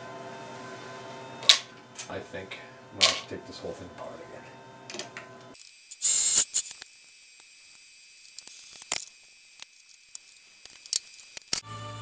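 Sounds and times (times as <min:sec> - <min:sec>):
burst of hiss: 0:05.9 - 0:06.7.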